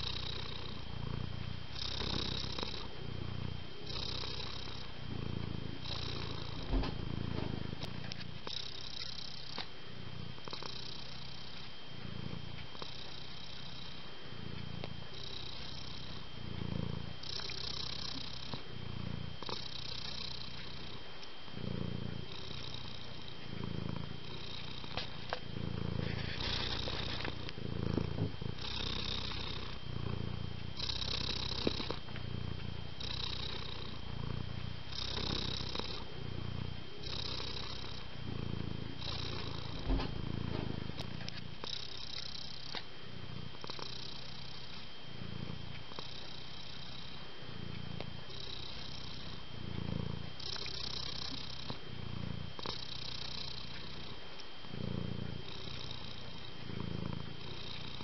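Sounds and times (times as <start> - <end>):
cat purring: 0.0 - 58.0.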